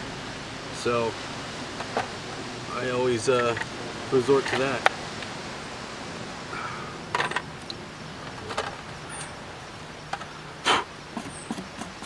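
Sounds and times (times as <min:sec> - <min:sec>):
faint outdoor background: 0:00.0 - 0:12.0
camp gear knocking and clattering: 0:07.1 - 0:07.6, 0:08.2 - 0:09.4.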